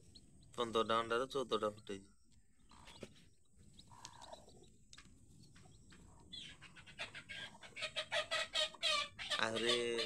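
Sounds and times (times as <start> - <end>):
chicks peeping: 0.0 - 10.0.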